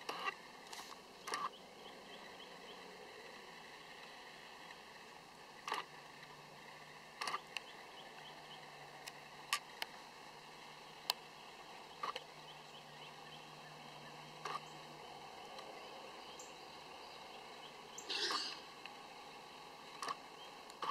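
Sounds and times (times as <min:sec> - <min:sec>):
sharp clicks: 0:19.9 - 0:20.9.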